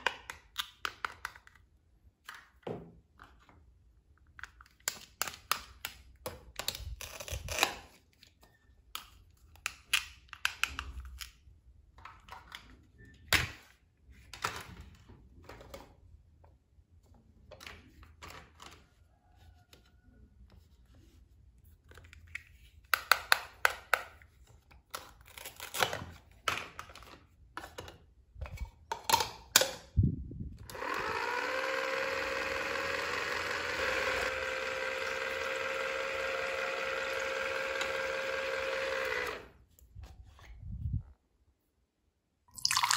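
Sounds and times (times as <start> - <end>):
toy blender whirring: 30.6 - 39.6.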